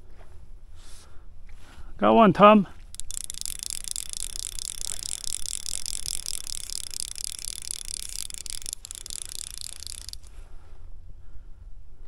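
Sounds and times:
fishing reel drag buzzing: 0:02.8 - 0:10.4.

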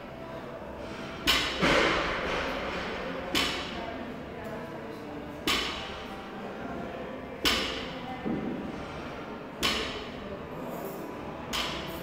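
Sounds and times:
sharp knocks echoing in a hall: 0:00.9 - 0:03.8.

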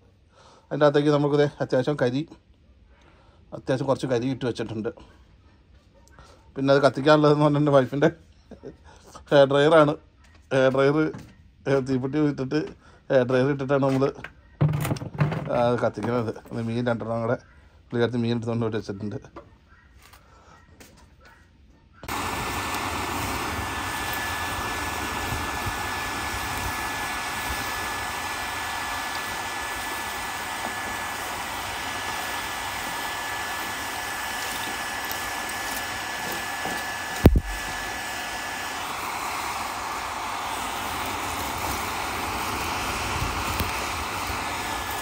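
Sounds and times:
hair dryer running with whine: 0:22.0 - 0:45.0.

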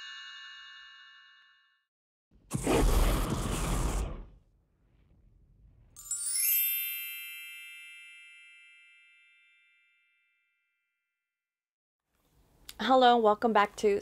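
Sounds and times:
sparkling bell-like chime: 0:06.0 - 0:10.9.

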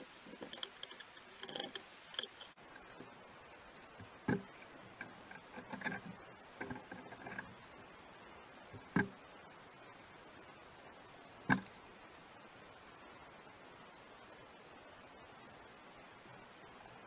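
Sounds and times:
steel parts clicking and clinking: 0:00.3 - 0:07.5.

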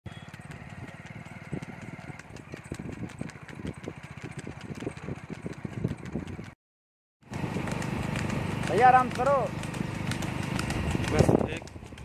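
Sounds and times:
small engine running: 0:00.1 - 0:06.6, 0:07.2 - 0:12.0
irregular knocks and clatter: 0:07.3 - 0:12.0.

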